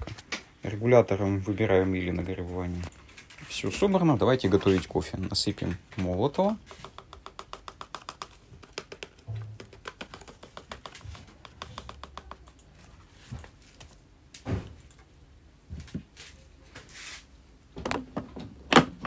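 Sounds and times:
portafilter knocking: 0:06.6 - 0:12.4.

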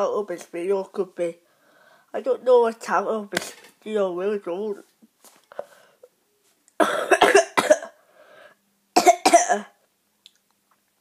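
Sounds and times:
boy coughing hard: 0:06.8 - 0:08.0, 0:09.0 - 0:09.8.

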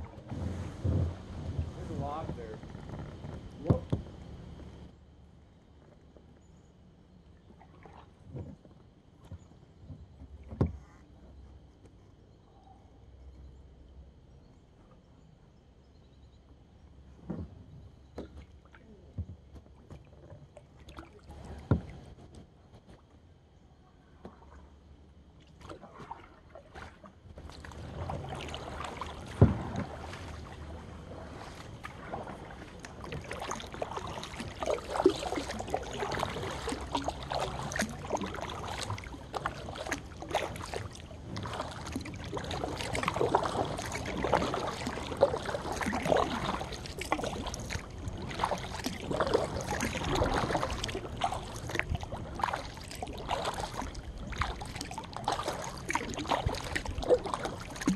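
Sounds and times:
paddle strokes splashing in water: 0:00.0 - 0:04.9, 0:07.5 - 0:08.7, 0:25.4 - 0:57.9
water rippling along hull: 0:00.0 - 0:57.9.

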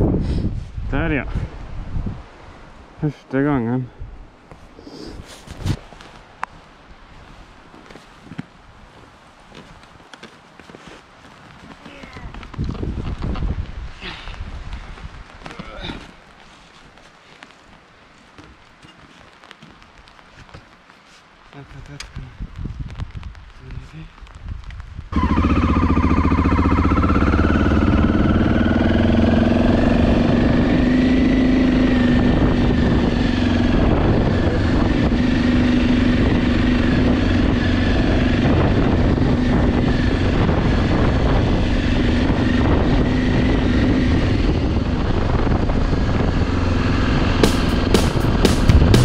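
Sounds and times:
motorcycle engine accelerating: 0:25.1 - 0:49.0.

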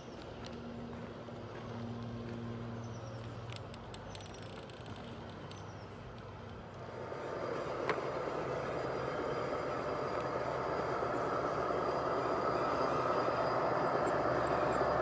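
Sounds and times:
model train rolling on track: 0:00.0 - 0:15.0
wheels clicking on rails: 0:00.0 - 0:15.0
another model train rumbling: 0:06.6 - 0:15.0.

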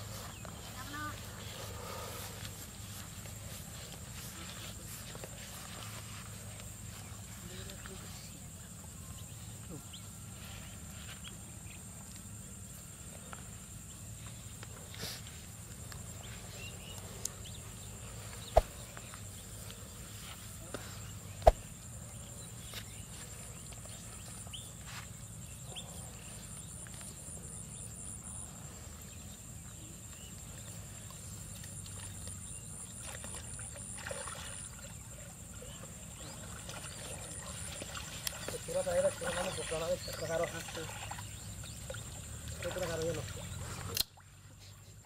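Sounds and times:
net splashing into water: 0:33.1 - 0:34.8.

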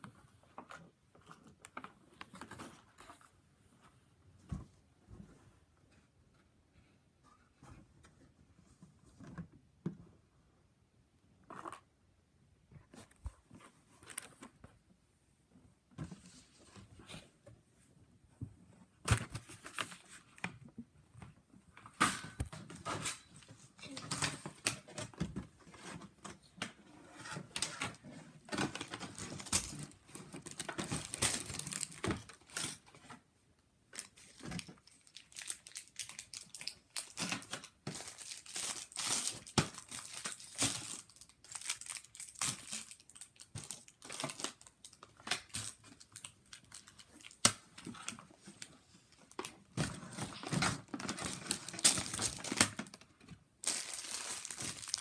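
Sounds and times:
packaging crinkling: 0:28.7 - 0:32.6, 0:34.0 - 0:47.5, 0:50.1 - 0:55.0.

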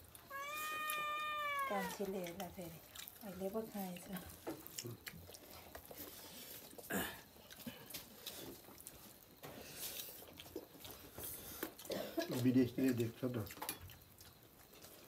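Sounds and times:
person chewing food: 0:00.0 - 0:03.2, 0:04.3 - 0:15.0.

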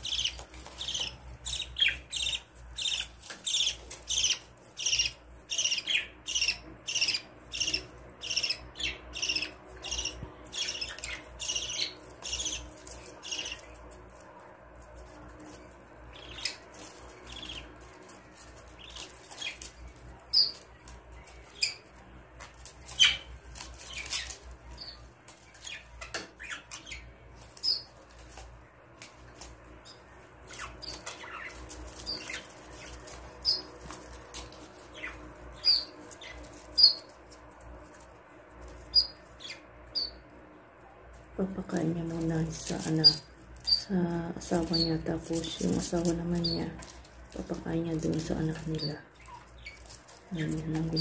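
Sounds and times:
budgerigars chirping: 0:00.0 - 0:13.8, 0:16.1 - 0:22.0, 0:22.6 - 0:27.0, 0:27.6 - 0:28.3, 0:29.8 - 0:37.1, 0:38.8 - 0:40.2, 0:42.5 - 0:46.9.

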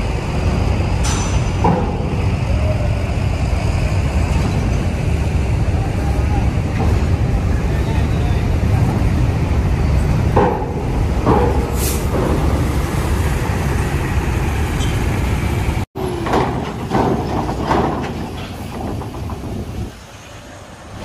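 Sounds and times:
diesel bus engine rumbling: 0:00.0 - 0:21.0
sharp knocks: 0:10.3 - 0:12.6, 0:16.2 - 0:19.9
air hiss: 0:11.6 - 0:12.2.

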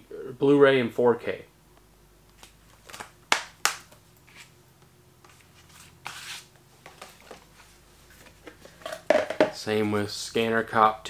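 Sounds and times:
rustling scrape: 0:05.3 - 0:09.0.

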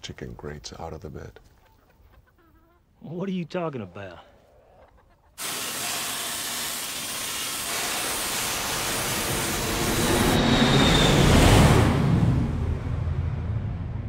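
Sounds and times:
pressure washer spray hissing: 0:05.4 - 0:10.4
jet airliner rumbling overhead: 0:08.9 - 0:14.0.

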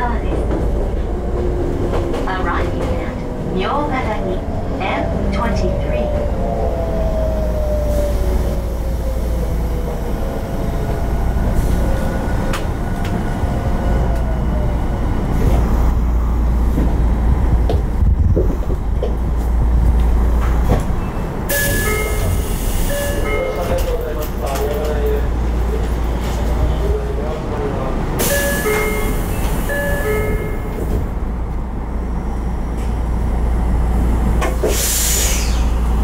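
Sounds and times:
rail clicks: 0:00.0 - 0:04.5, 0:16.7 - 0:31.7, 0:33.9 - 0:34.9
wheel and track rumble: 0:00.0 - 0:36.0.

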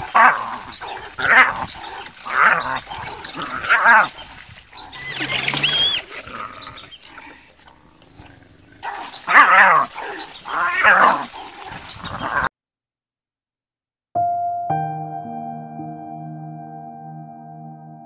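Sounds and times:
hyena high wavering calls: 0:04.8 - 0:07.1
hyena loud squealing cries: 0:04.8 - 0:07.4, 0:08.9 - 0:11.4.

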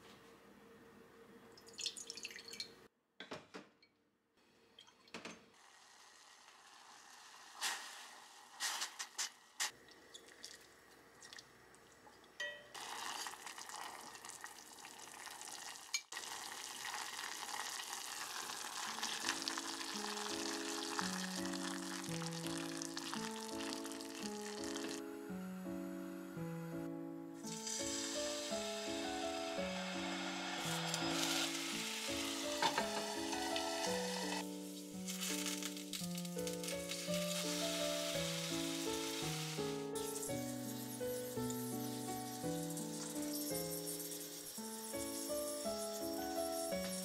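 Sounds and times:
broth simmering hiss: 0:05.6 - 0:11.2, 0:12.8 - 0:26.5, 0:27.4 - 0:47.0
soft piano music: 0:12.4 - 0:12.8, 0:18.9 - 0:47.0
utensils knocking on metal pot: 0:32.5 - 0:34.4.

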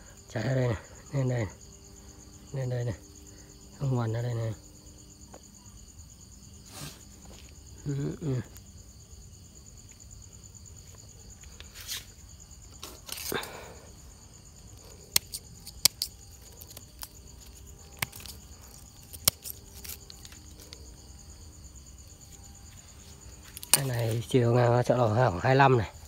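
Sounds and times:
crickets chirring: 0:00.0 - 0:26.0
rustle: 0:10.8 - 0:13.6.

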